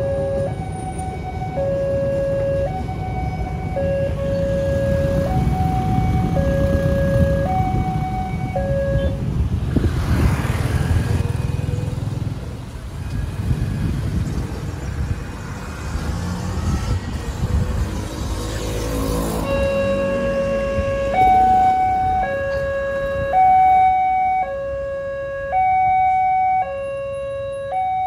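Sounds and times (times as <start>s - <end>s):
level-crossing alarm two tones: 0.0s - 9.1s, 19.4s - 28.0s
motorcycle and car engines rumbling: 0.0s - 28.0s.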